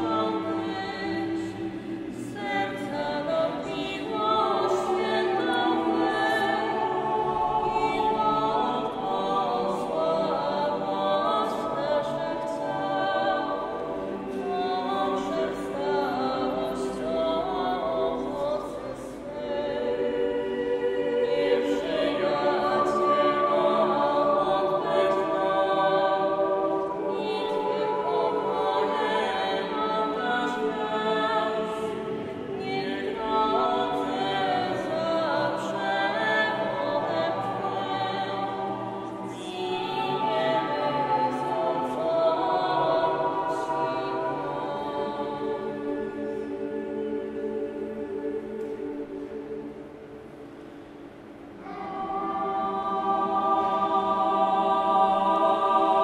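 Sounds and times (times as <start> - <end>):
mixed choir singing unaccompanied: 0.0 - 56.0.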